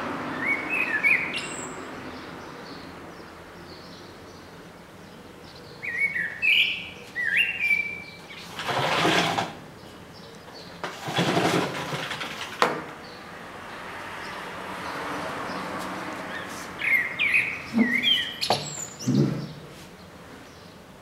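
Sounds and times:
blackbird singing: 0:00.2 - 0:08.6, 0:09.8 - 0:10.8, 0:13.0 - 0:20.9.

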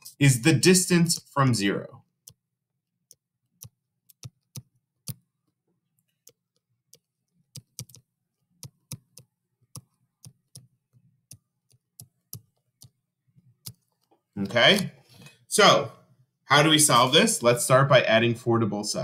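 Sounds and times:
stylus tapping on tablet screen: 0:02.2 - 0:14.9.

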